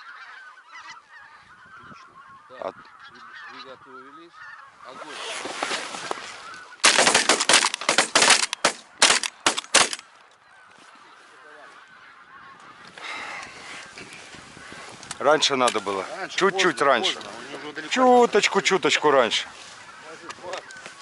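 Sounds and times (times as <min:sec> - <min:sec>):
geese honking: 0:00.0 - 0:21.0
shotgun shots: 0:06.8 - 0:10.0.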